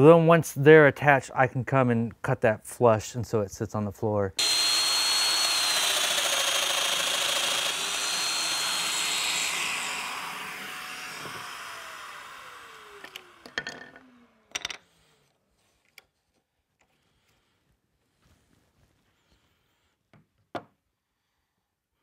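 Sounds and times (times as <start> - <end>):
dust extractor: 4.4 - 14.2
power joiner cutting wood: 4.4 - 14.5.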